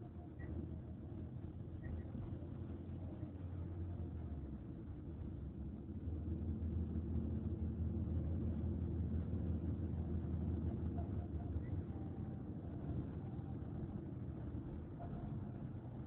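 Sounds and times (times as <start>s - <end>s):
vehicle engine and road rumble: 0.0s - 16.0s.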